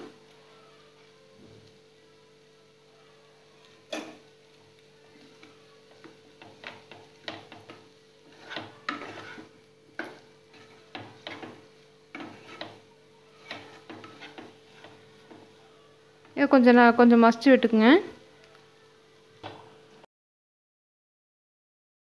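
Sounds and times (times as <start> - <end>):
wooden spatula scraping a pan: 5.0 - 16.5.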